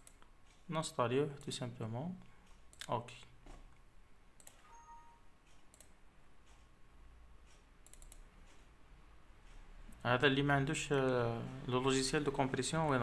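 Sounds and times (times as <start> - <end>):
computer mouse clicks: 0.0 - 0.7, 2.5 - 3.8, 4.4 - 4.8, 5.5 - 6.8, 7.4 - 8.8
low steady hum: 0.0 - 13.0.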